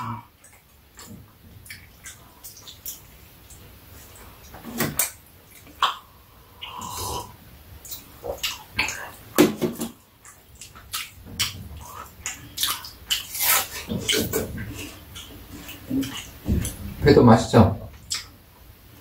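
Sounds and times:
chewing: 0.0 - 9.4, 10.2 - 17.0
biting crisp fruit: 10.3 - 16.3.

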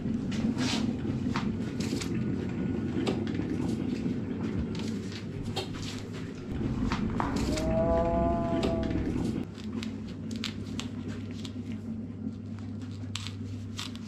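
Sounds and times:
steady low rumble: 3.8 - 9.5
slowed cat meow: 7.2 - 9.4.

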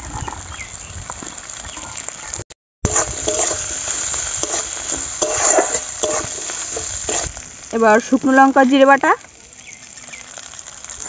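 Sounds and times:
seeds sizzling in hot oil: 0.5 - 11.0
metal spatula scraping pan: 2.9 - 7.4.

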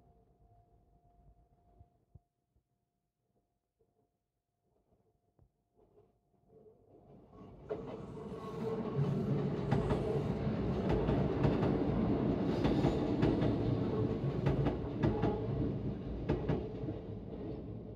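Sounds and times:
train rumbling past: 7.4 - 17.9.

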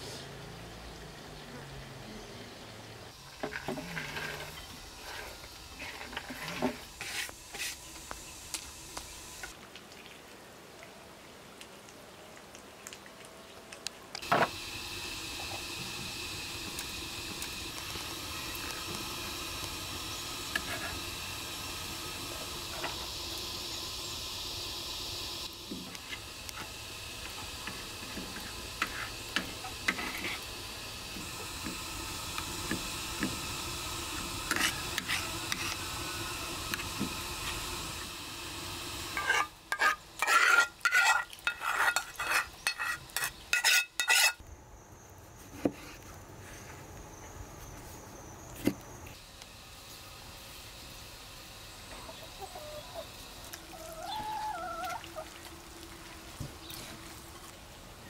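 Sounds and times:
butter sizzling in frying pan: 14.2 - 44.4
nuts scraped off cutting board: 39.1 - 44.4.

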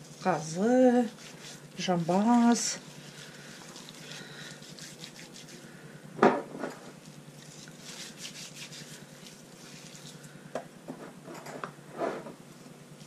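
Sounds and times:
hands rubbing salt into meat: 0.0 - 5.8, 6.9 - 10.5.

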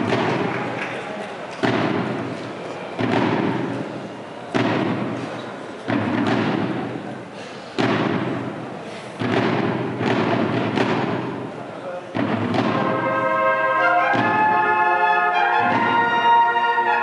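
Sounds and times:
heavy drum strikes: 0.0 - 0.8, 1.6 - 2.4, 3.0 - 14.8, 15.5 - 16.4
brass and drum band playing: 12.2 - 17.0.

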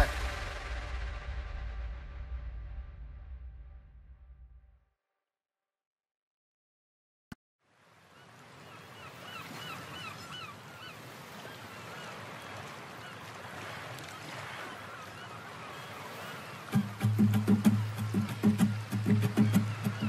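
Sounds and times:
bird chirping: 18.5 - 20.0.

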